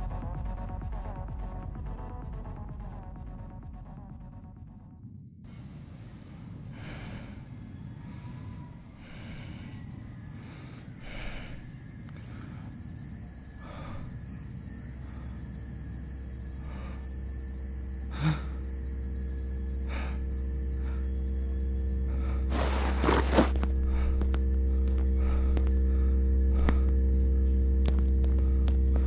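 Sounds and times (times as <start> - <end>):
low drone of held tones: 0.0 - 29.0
man breathing heavily: 5.5 - 15.6, 18.1 - 18.6, 22.0 - 27.0.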